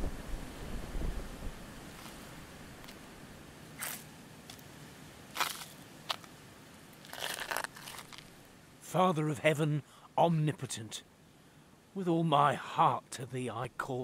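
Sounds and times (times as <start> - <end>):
faint background hiss: 0.0 - 14.0
scuffing and rustling: 1.9 - 3.0.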